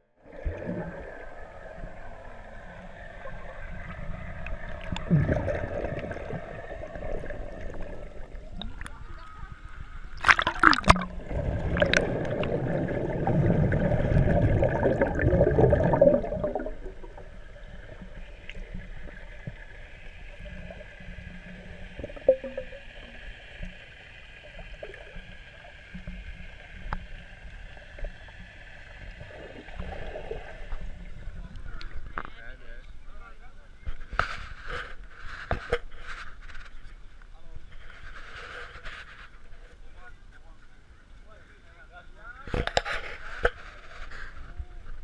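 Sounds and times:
underwater churning and bubbling: 0:00.2 - 0:32.3.

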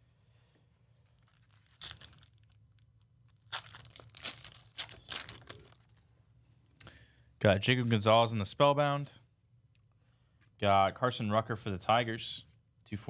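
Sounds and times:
foil wrapper tearing and crinkling: 0:01.2 - 0:06.0.

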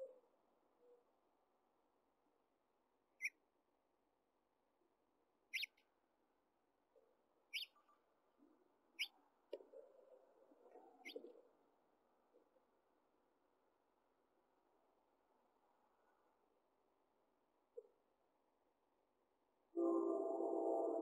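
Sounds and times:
finch chirping: 0:05.5 - 0:05.8, 0:11.0 - 0:11.2.

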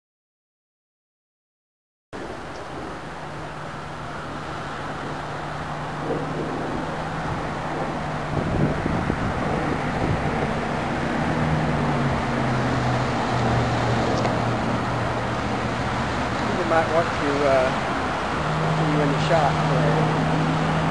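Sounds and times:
outdoor noise: 0:02.1 - 0:20.9
engine hum: 0:02.2 - 0:20.9.

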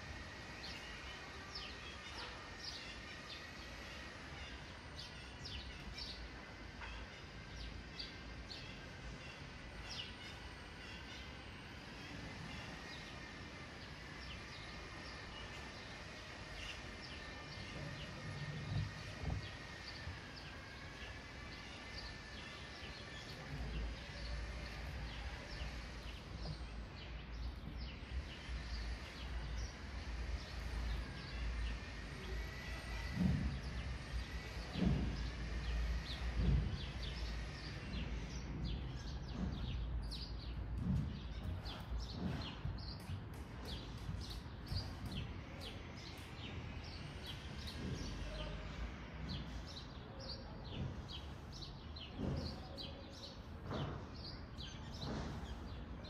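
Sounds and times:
birds chirping: 0:00.2 - 0:56.0.

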